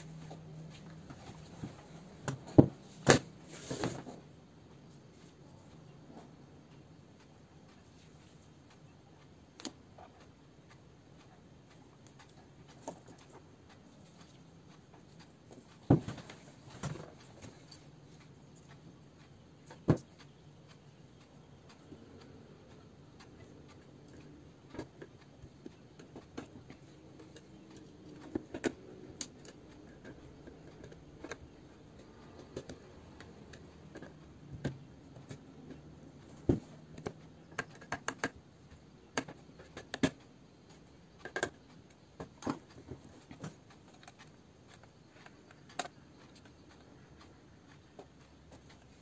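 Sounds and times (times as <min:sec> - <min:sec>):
screwdriver clicks and taps: 0:36.5 - 0:38.4.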